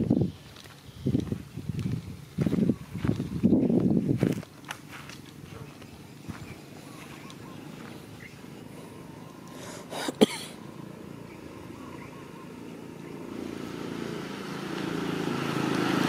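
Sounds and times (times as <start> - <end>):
motorbike engine running: 10.6 - 16.0.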